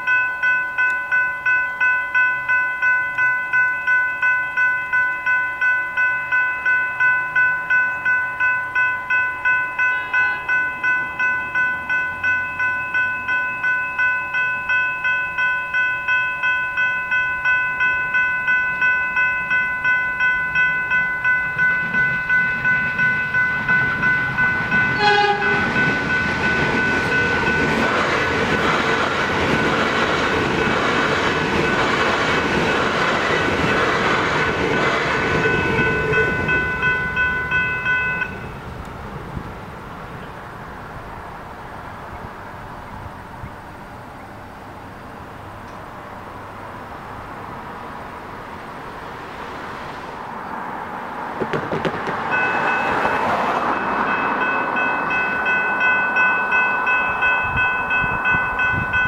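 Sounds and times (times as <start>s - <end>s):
level crossing bells ringing: 0.0s - 38.6s, 52.3s - 59.0s
train passing: 0.0s - 59.0s
train horn blast: 24.9s - 25.9s.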